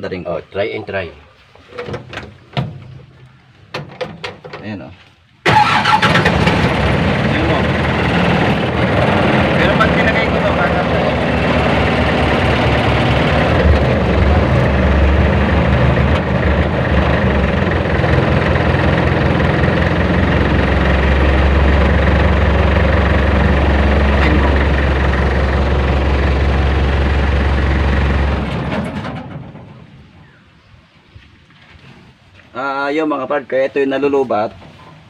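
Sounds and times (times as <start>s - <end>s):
engine idling: 5.5s - 30.2s.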